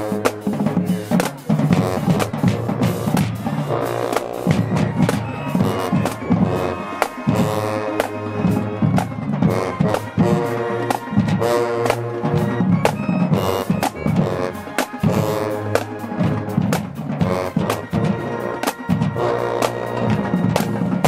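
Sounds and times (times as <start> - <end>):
brass holding notes: 0.0 - 21.0
snare and bass drums: 0.0 - 21.0.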